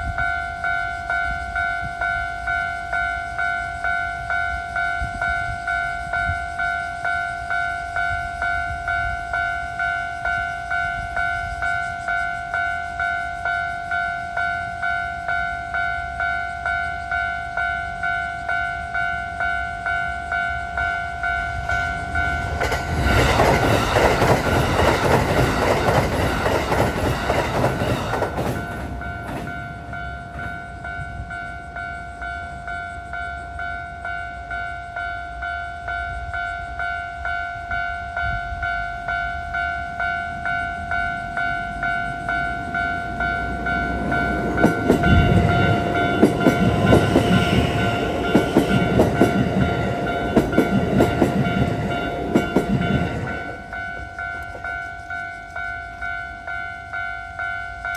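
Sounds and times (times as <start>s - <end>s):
electric train rumbling past: 0.0s - 57.9s
level-crossing alarm dinging: 0.0s - 57.9s
train on steel bridge: 0.0s - 57.9s
wheels clacking over rail joints: 21.1s - 31.3s, 40.4s - 56.2s.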